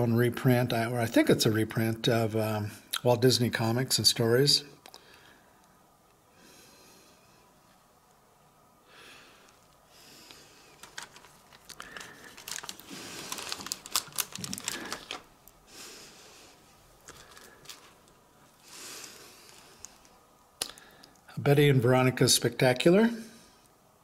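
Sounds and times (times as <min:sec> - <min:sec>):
plastic bag crinkling: 0:10.6 - 0:15.6, 0:17.0 - 0:20.8.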